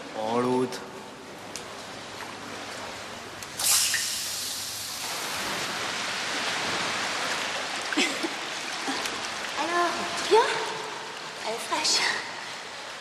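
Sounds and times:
water spraying and splashing: 3.4s - 10.2s.

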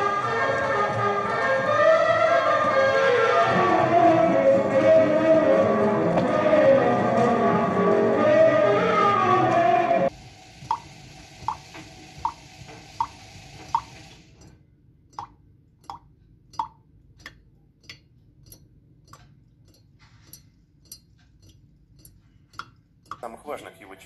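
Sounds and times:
song: 0.0s - 10.1s
water drops plopping into glass: 15.2s - 16.8s.

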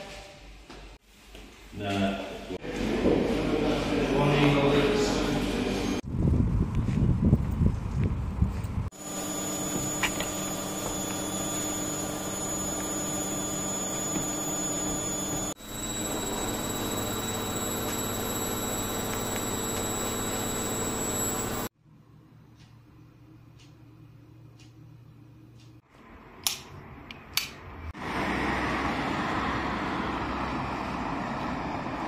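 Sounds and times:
machine hum with high whine: 9.0s - 21.7s.

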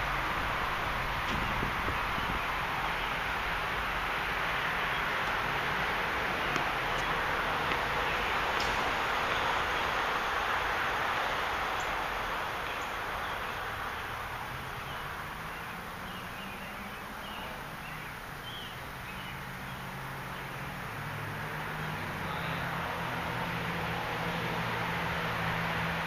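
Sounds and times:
outdoor background hiss: 0.0s - 26.0s.

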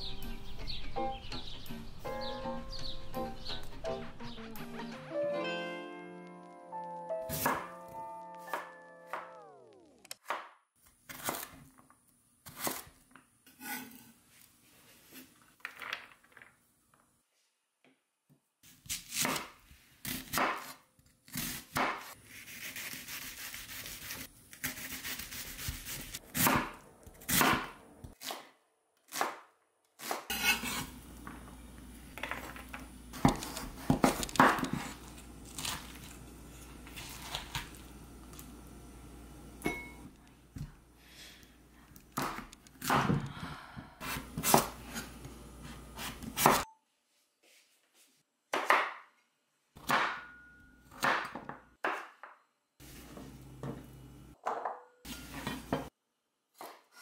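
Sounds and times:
knife chopping on wooden board: 24.7s - 28.5s, 33.2s - 35.0s.

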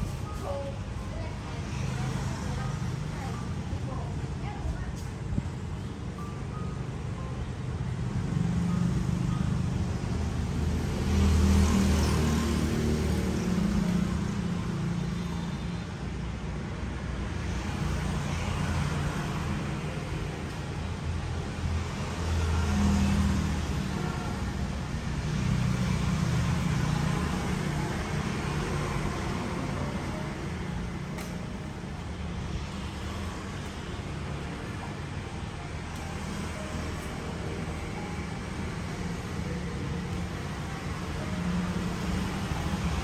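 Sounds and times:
traffic engine hum and road noise: 0.0s - 43.0s.

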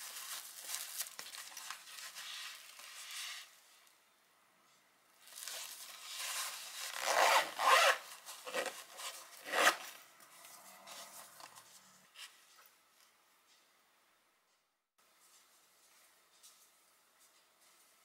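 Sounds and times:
foil lining rustling: 0.0s - 3.5s
bag handling: 5.3s - 9.8s
zipper pulled shut: 6.8s - 9.9s.

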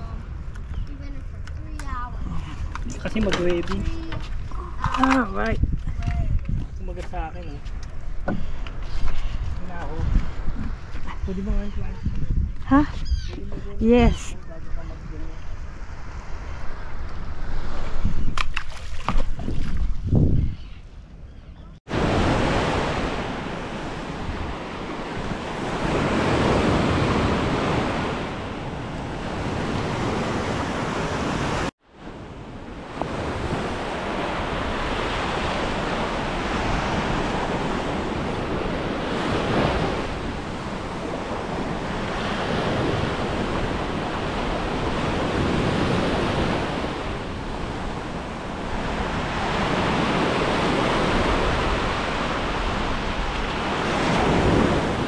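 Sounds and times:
wind buffeting microphone: 0.0s - 55.0s
ocean surf breaking on beach: 21.9s - 55.0s.

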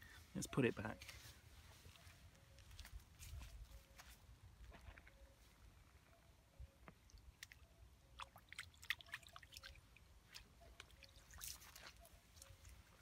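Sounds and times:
water drips and splashes: 6.9s - 13.0s
wading step in shallow water: 8.2s - 13.0s.

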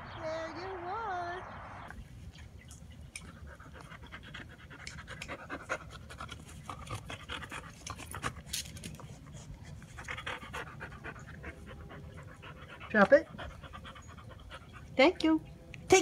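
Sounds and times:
dog panting: 3.2s - 15.4s.

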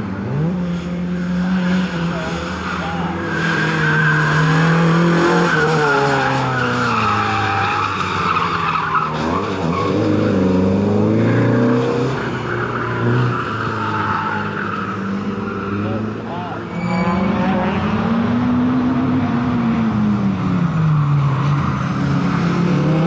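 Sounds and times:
race car engine revving: 0.0s - 23.0s
tyres squealing: 1.8s - 10.1s, 12.1s - 17.8s.

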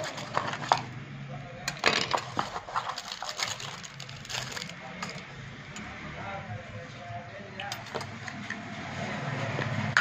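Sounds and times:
sharp clicks and crinkles: 1.7s - 5.9s.

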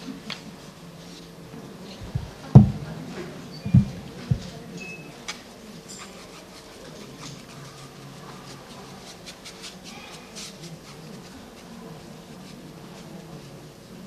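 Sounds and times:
brush scratching strokes: 5.8s - 14.0s.

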